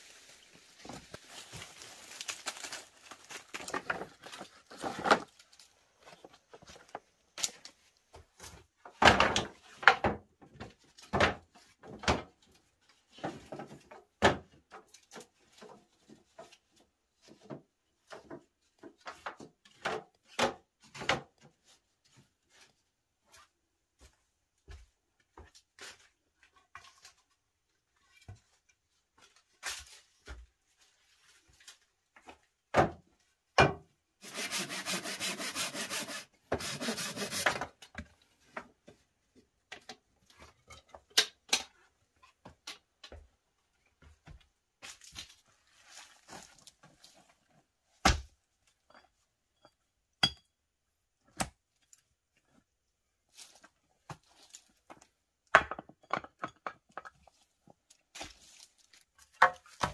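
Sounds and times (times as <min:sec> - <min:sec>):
bamboo slats knocking and clattering: 0:00.6 - 0:12.4, 0:17.2 - 0:21.5, 0:58.1 - 0:59.9.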